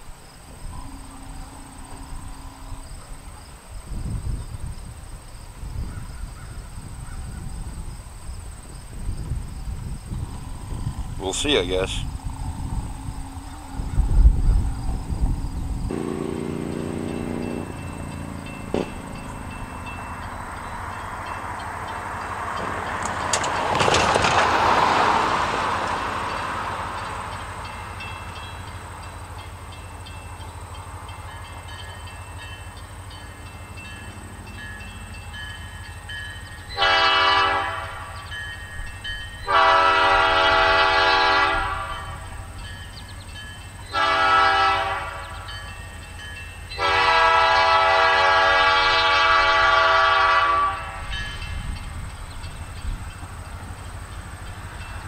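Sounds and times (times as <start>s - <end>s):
train rumbling: 0.0s - 55.0s
locomotive air horn: 0.7s - 2.8s, 12.8s - 14.5s, 15.9s - 17.4s, 36.8s - 38.2s, 39.4s - 42.4s, 43.9s - 45.4s, 46.8s - 51.1s.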